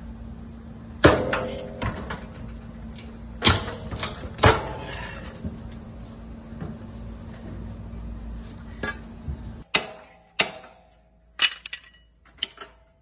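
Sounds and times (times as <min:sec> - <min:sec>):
axe striking metal bar clangs: 0:01.0 - 0:02.0, 0:03.4 - 0:04.8, 0:09.7 - 0:12.8.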